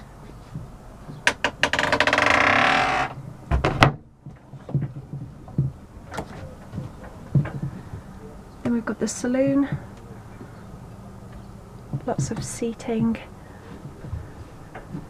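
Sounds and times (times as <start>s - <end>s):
wooden door creaking: 1.0s - 7.9s
light knocks and handling: 3.5s - 8.8s.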